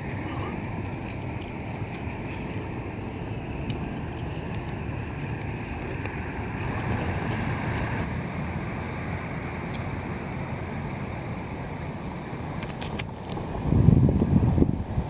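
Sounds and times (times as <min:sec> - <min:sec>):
wind on microphone: 0:00.0 - 0:09.3, 0:12.7 - 0:15.0
distant traffic: 0:00.0 - 0:15.0.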